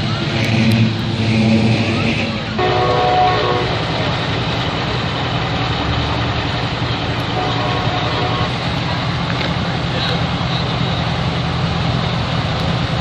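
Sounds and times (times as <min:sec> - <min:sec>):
heavy engine rumbling: 0:00.0 - 0:13.0.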